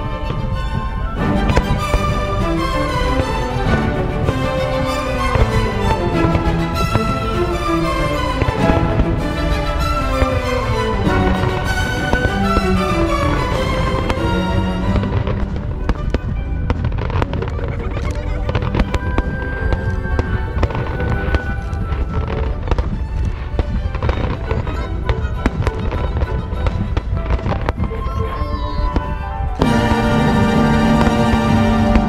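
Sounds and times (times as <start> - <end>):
fireworks bursting and crackling: 0.0 - 32.0
orchestral music: 0.0 - 32.0.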